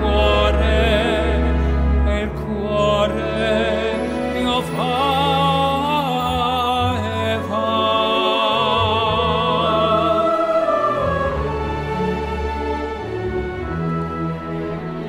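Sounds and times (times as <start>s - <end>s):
man singing opera: 0.0s - 11.0s
instrumental accompaniment: 0.0s - 15.0s.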